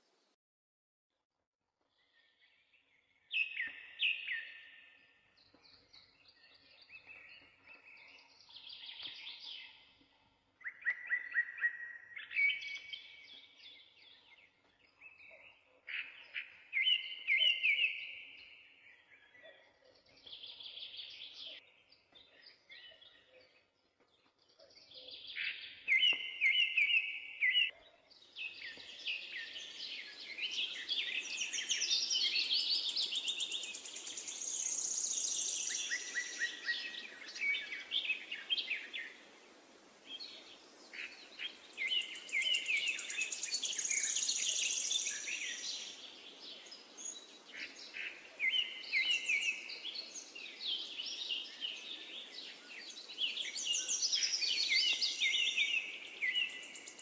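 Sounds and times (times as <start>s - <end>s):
birds chirping and singing: 2.0s - 57.0s
faint steady hiss: 29.3s - 57.0s.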